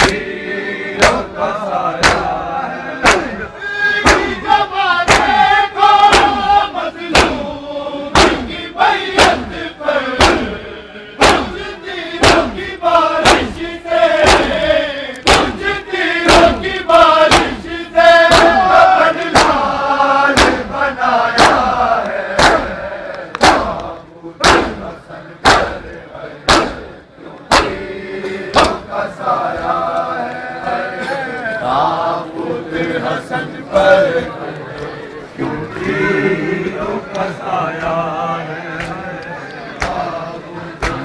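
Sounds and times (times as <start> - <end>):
hands slapping chests: 0.0 - 0.3, 1.0 - 1.3, 2.0 - 2.4, 3.0 - 3.4, 4.0 - 5.4, 6.1 - 7.5, 8.2 - 8.5, 10.2 - 10.5, 11.2 - 11.6, 12.2 - 12.6, 13.2 - 13.6, 14.2 - 15.7, 16.3 - 16.7, 17.3 - 17.7, 18.3 - 18.7, 19.3 - 19.7, 20.3 - 20.7, 21.3 - 24.8, 25.4 - 25.8, 26.5 - 26.9, 27.5 - 28.9, 38.7 - 40.1, 40.8 - 41.0
men chanting a lament: 0.0 - 41.0.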